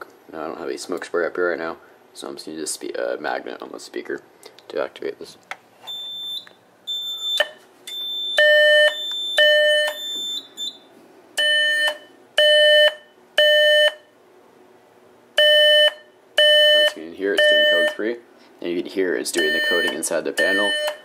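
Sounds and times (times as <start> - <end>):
buzzy smoke alarm tones: 5.8 - 14.1, 15.4 - 18.0, 19.3 - 21.0
short high-pitched beeps: 5.9 - 10.8, 19.4 - 21.0.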